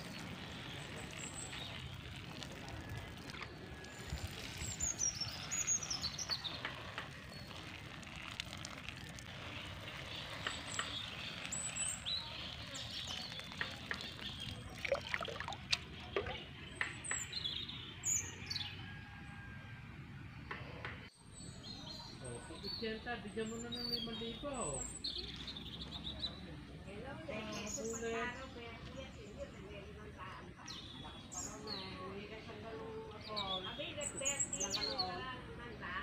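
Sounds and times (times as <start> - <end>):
water sprinkling on plants: 0.0 - 16.5
birds chirping: 0.0 - 18.7.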